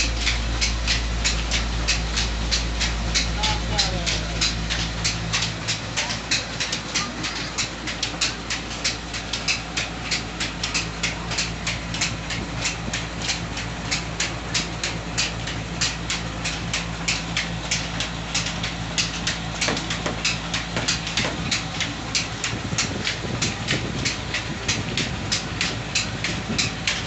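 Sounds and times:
rapid regular clacking: 0.0s - 27.0s
stone mill motor humming: 0.0s - 27.0s.

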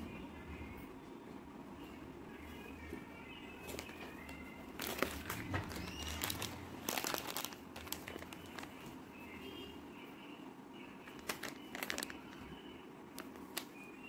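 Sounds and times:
plastic packet crinkling: 3.6s - 8.9s, 11.1s - 13.8s.

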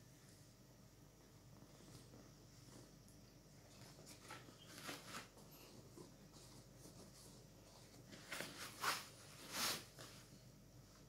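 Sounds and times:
hand rubbing nylon fabric: 6.2s - 10.3s.

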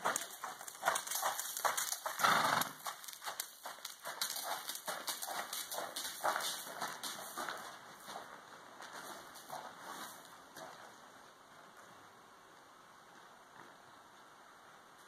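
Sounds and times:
horse hoofbeats on dirt: 0.0s - 11.9s.

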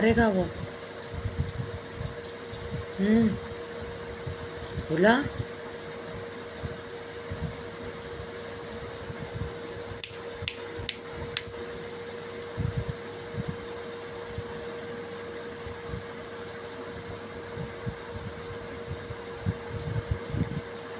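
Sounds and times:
steady mechanical hum: 0.0s - 20.9s
sharp clicks: 9.8s - 11.5s.

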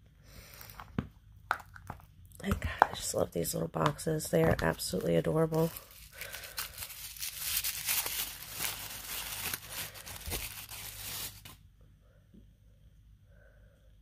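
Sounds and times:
tissue paper crinkling: 4.7s - 11.6s.

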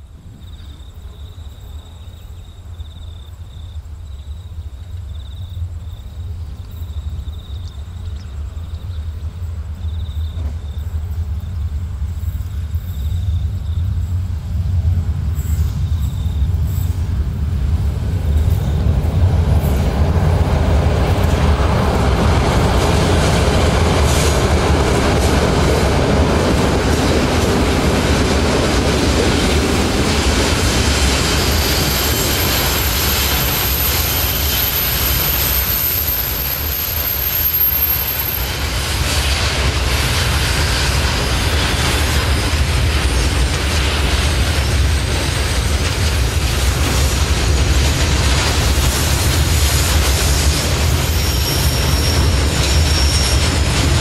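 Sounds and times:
electric locomotive rumble: 0.0s - 54.0s
train wheels clattering on rails: 4.6s - 54.0s
thin high squeal: 31.5s - 38.6s, 51.0s - 53.7s.

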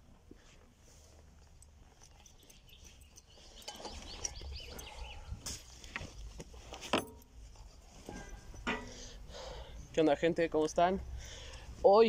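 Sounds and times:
backpack straps and fabric rustling: 0.1s - 8.7s
backpack clicks and knocks: 6.0s - 7.3s.

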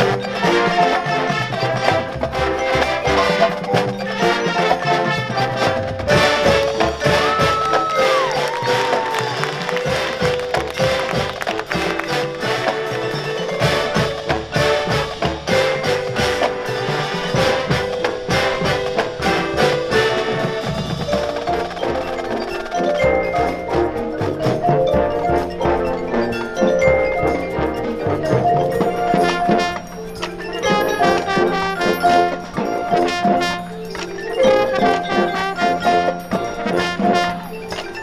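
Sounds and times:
mallet percussion notes: 0.0s - 38.0s
marching band playing: 0.0s - 38.0s.

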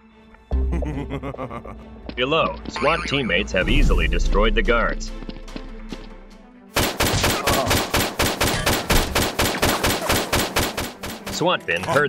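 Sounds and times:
faint background music: 0.0s - 12.0s
rapid automatic gunfire: 6.8s - 11.4s.

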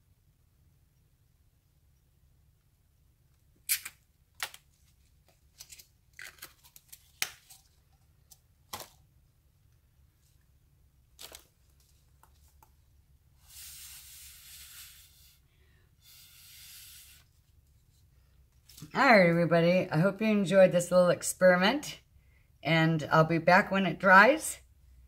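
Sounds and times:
air hissing through straw: 13.4s - 17.3s.

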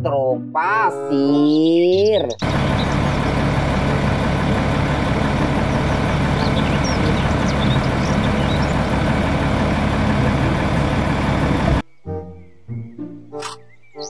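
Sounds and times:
diesel truck engine running: 2.2s - 11.8s
faint bird chirps: 5.8s - 8.8s.

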